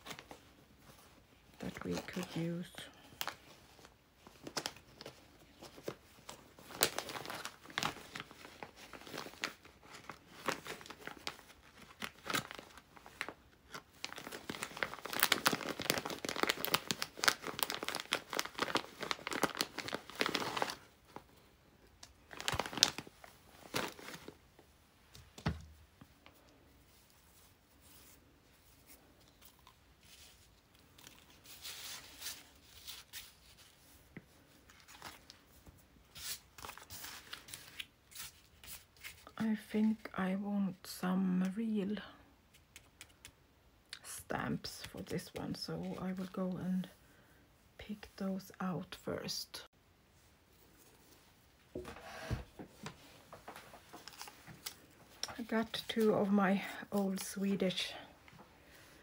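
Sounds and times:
fabric and paper rustling: 0.0s - 40.2s, 50.5s - 59.0s
plastic bag crinkling: 1.6s - 21.4s, 22.0s - 24.6s, 52.8s - 58.0s.

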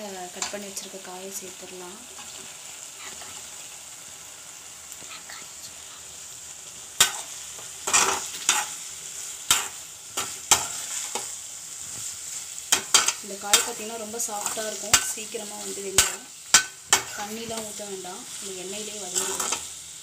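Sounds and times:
masala sizzling in metal pan: 0.0s - 20.0s
spatula scraping and knocking pan: 7.0s - 8.8s, 9.4s - 12.1s, 12.7s - 17.8s.

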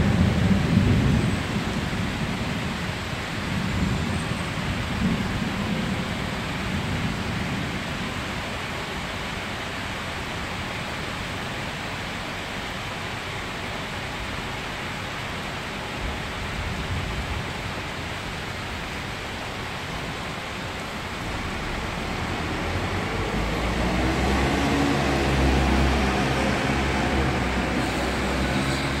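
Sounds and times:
rain hissing on street: 0.0s - 29.0s
passing vehicle engine hum: 21.0s - 29.0s.

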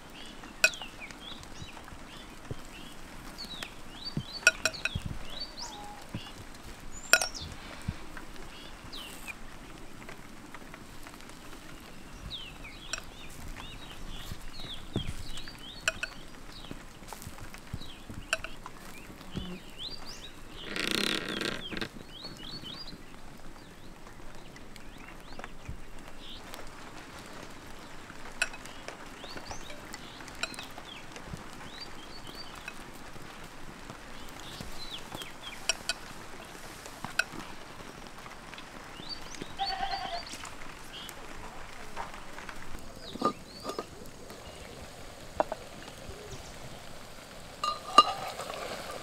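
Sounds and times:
fire crackling pops: 0.0s - 49.0s
small birds chirping: 0.0s - 49.0s
loud bird call: 5.4s - 6.4s.

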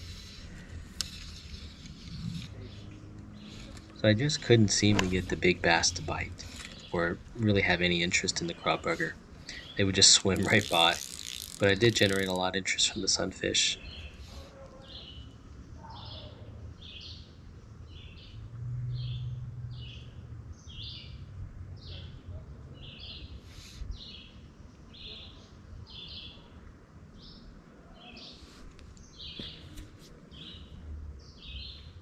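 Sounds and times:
bird chirping: 0.0s - 17.3s.

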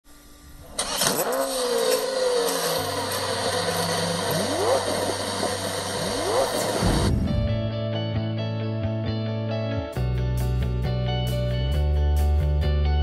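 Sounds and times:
rising swoops: 6.0s - 7.9s
rushing whoosh: 6.8s - 7.9s.

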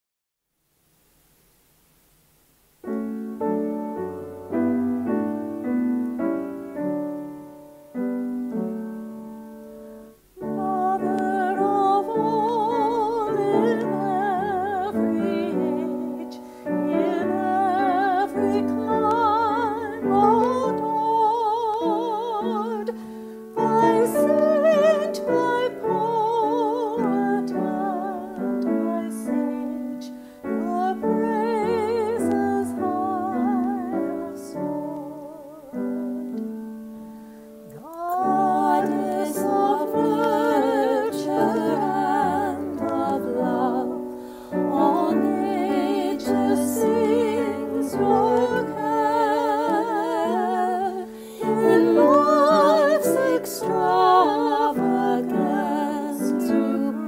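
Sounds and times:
piano hymn melody: 2.7s - 57.0s
woman singing with vibrato: 10.4s - 36.0s, 37.8s - 57.0s.

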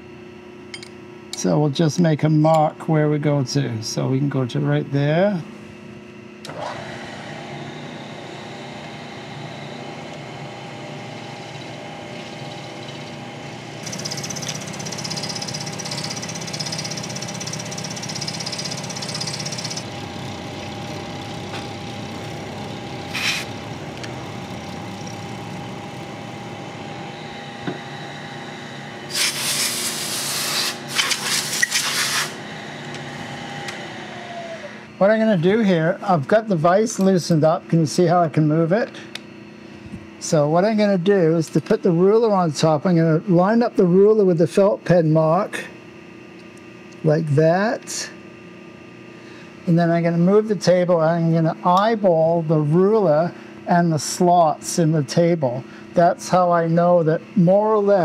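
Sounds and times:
milling machine spindle hum: 0.0s - 58.0s
metal cutting hiss: 23.1s - 23.6s, 29.1s - 32.4s.

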